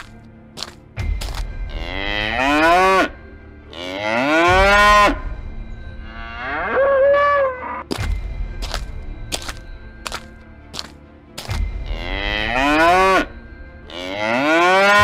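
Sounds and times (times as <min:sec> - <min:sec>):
cow mooing: 0:03.7 - 0:05.2, 0:06.0 - 0:07.9, 0:13.9 - 0:15.0.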